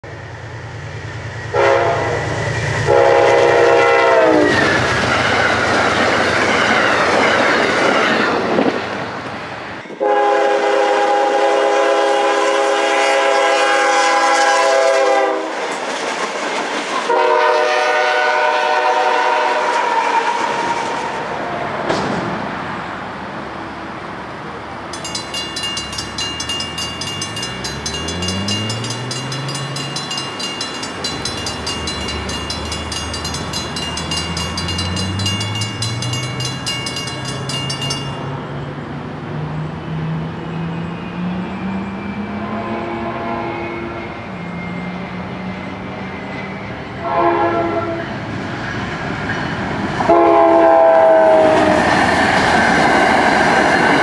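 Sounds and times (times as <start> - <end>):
passing train rumble: 0.0 - 54.0
locomotive horn blasts: 1.5 - 4.5, 10.0 - 15.6, 17.1 - 20.7, 42.3 - 44.1, 47.0 - 48.1, 50.1 - 51.8
crossing bells ringing: 24.9 - 38.8.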